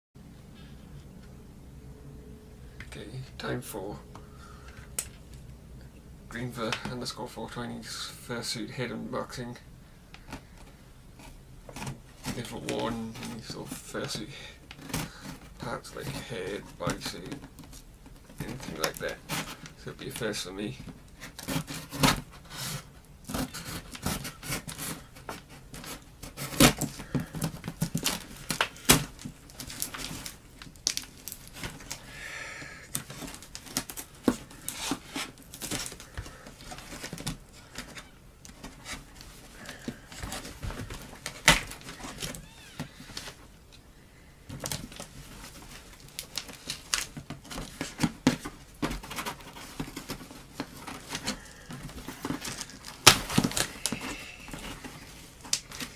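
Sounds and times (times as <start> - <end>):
cardboard flaps rustling: 10.2 - 32.1, 32.9 - 43.7, 44.4 - 55.9
tape tearing: 21.2 - 32.1, 32.9 - 43.4, 44.5 - 55.9.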